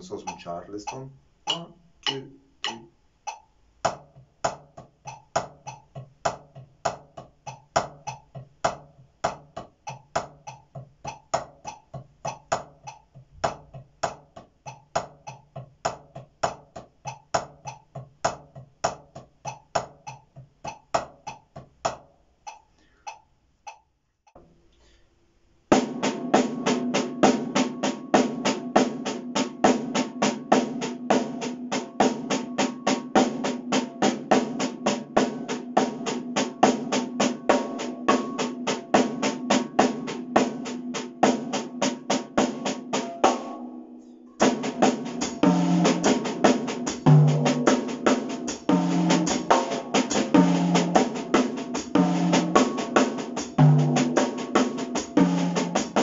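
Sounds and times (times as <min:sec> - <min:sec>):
drumsticks on practice pads: 0:00.0 - 0:24.9.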